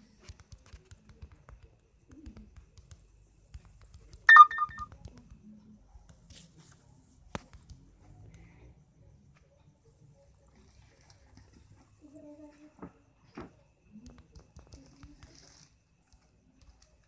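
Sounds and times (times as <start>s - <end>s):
phone notification beeps: 4.3s - 4.9s.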